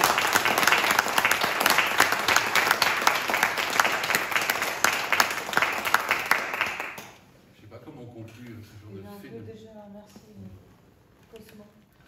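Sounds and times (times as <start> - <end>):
people applauding: 0.0 - 7.2.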